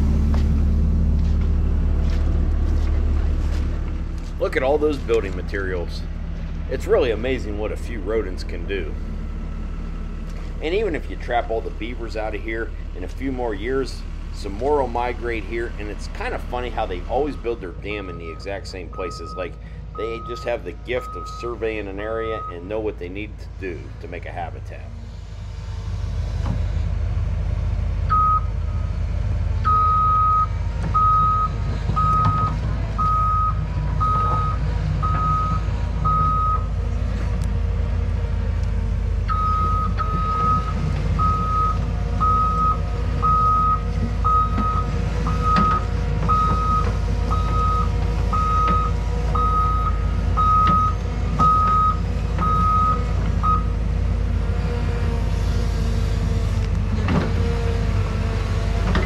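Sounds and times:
excavator diesel engine rumble: 0:00.0 - 0:59.0
travel alarm beeping: 0:28.1 - 0:28.5, 0:29.6 - 0:36.7, 0:39.3 - 0:44.8, 0:45.4 - 0:53.7.

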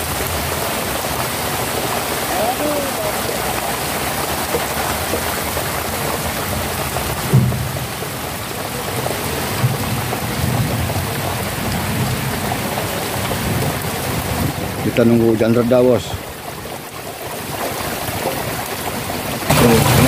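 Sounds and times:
heavy rain falling: 0:00.0 - 0:20.0
low thump: 0:07.3 - 0:08.0.

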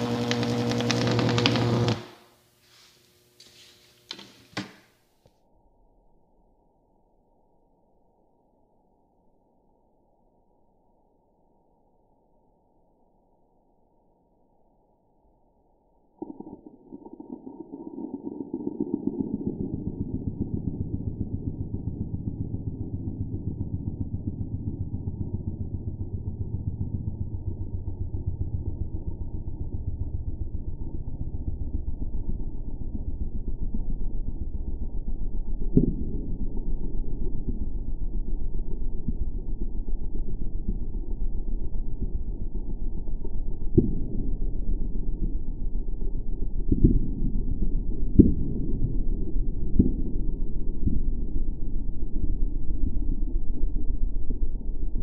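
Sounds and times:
electric arc buzzing: 0:00.0 - 0:02.4
deep muffled electric buzz: 0:00.0 - 0:04.8, 0:16.2 - 0:55.0.

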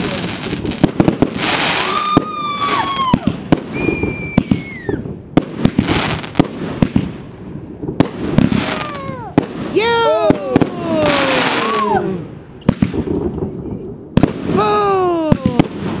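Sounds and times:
fireworks hissing: 0:00.0 - 0:05.0, 0:08.0 - 0:13.2
fireworks bangs and crackles: 0:00.0 - 0:16.0
falling whistles: 0:01.8 - 0:05.0.

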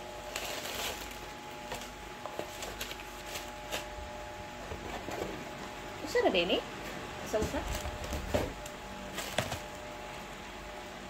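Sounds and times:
plastic packaging crinkling: 0:00.0 - 0:04.2, 0:07.4 - 0:10.2
cardboard box rustling: 0:00.2 - 0:04.0, 0:07.3 - 0:09.9.

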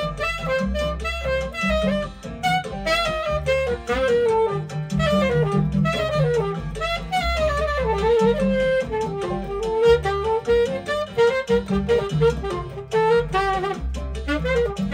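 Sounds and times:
low bass notes: 0:00.0 - 0:14.9
saxophone playing jazzy melody: 0:00.0 - 0:14.9.

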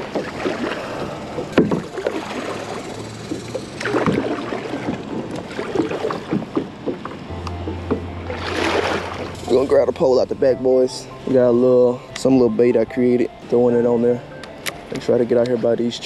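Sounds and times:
kayak paddle splashing: 0:00.0 - 0:10.2.

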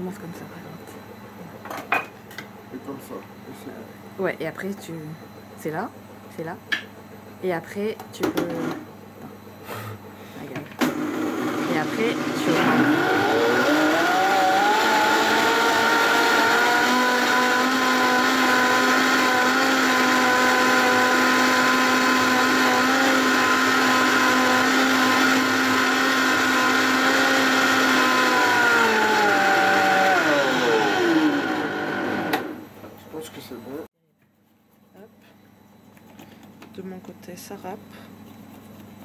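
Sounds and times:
blender running: 0:08.2 - 0:08.9, 0:10.4 - 0:32.7.

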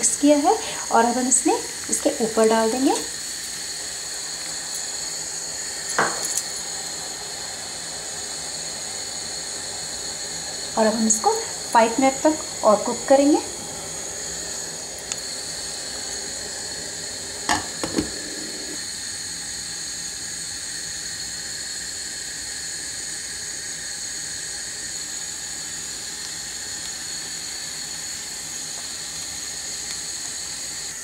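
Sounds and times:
thin high whine: 0:00.0 - 0:20.2
syrup boiling with a hiss: 0:00.0 - 0:31.0.

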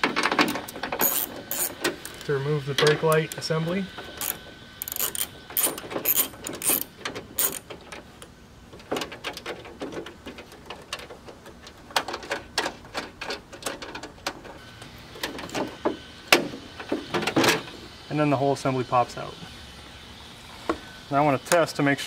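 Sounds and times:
socket ratchet clicking: 0:01.0 - 0:02.2, 0:04.2 - 0:07.7.

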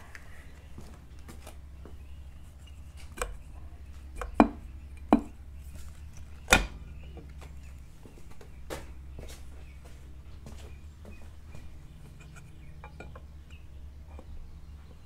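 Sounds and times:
steady low hum: 0:00.0 - 0:15.0
metal knocks and clunks: 0:12.1 - 0:13.3.

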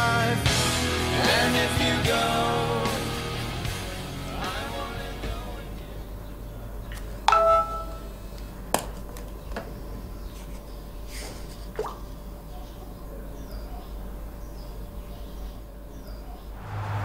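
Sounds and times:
phone message chime: 0:07.3 - 0:08.1.

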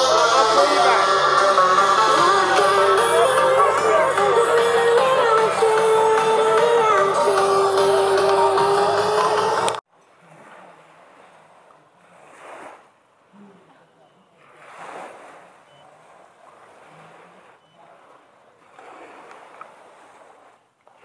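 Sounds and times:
faint voices of people: 0:00.0 - 0:09.7, 0:13.3 - 0:14.8
small waves washing onto beach: 0:08.1 - 0:21.0.

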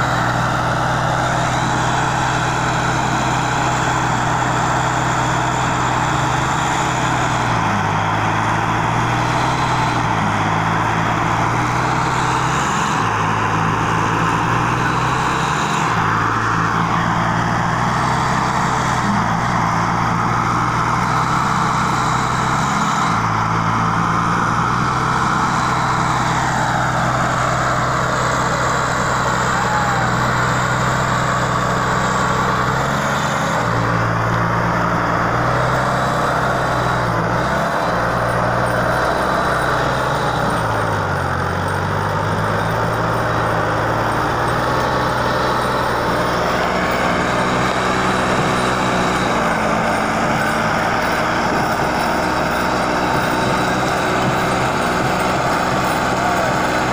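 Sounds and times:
diesel tractor engines under load: 0:00.0 - 0:56.9.

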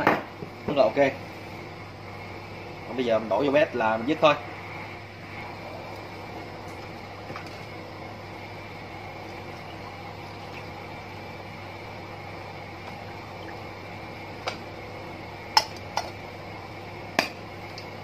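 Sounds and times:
background hum: 0:00.0 - 0:18.0
liquid trickling into cup: 0:09.2 - 0:11.1.

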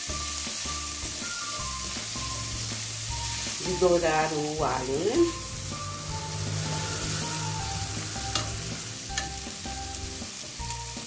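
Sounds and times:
food sizzling in a pot: 0:00.0 - 0:11.0
spatula stirring: 0:04.9 - 0:10.1.

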